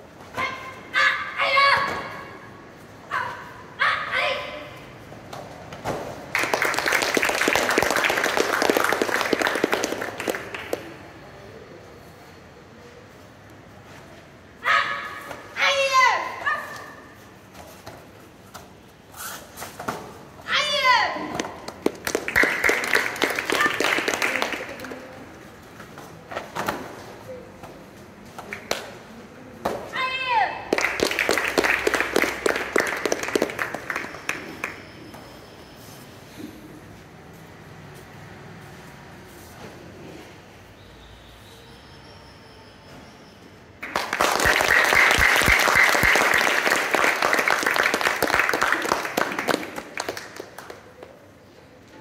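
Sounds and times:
audience applauding: 6.3s - 10.9s, 21.8s - 25.0s, 30.7s - 34.8s, 43.8s - 50.8s.

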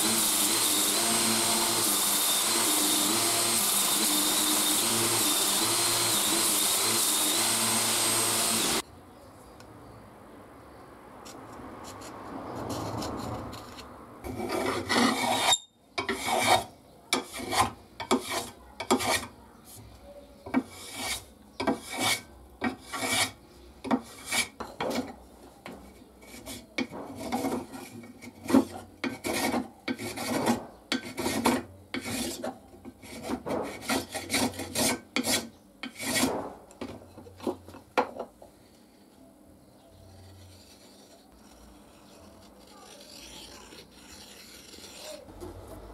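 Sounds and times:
hand plane shaving wood: 14.3s - 15.5s, 16.1s - 19.3s, 20.6s - 23.4s, 26.2s - 36.3s, 40.2s - 45.8s.

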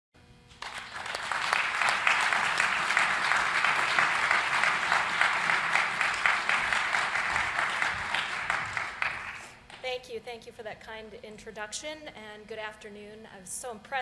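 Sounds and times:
audience applauding: 0.5s - 9.6s.

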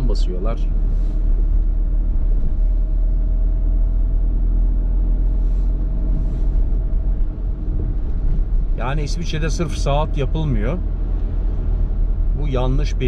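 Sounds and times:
car engine rumble: 0.0s - 13.0s
tyres on wet road: 4.9s - 13.0s.

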